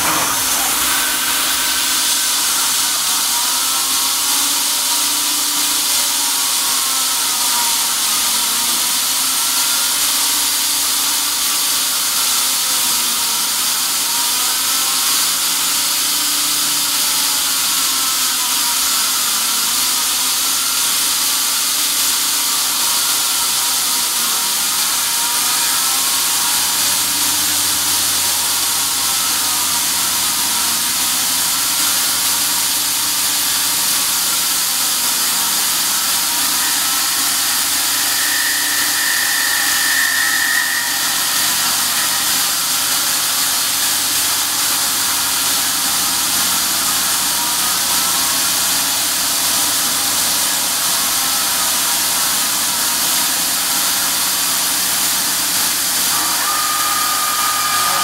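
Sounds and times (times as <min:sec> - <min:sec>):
motors whining: 0:00.0 - 0:04.7, 0:25.4 - 0:45.2
loud air hiss from nozzle: 0:00.0 - 0:12.6, 0:13.5 - 0:58.0
milling machine cutting steel: 0:00.0 - 0:58.0.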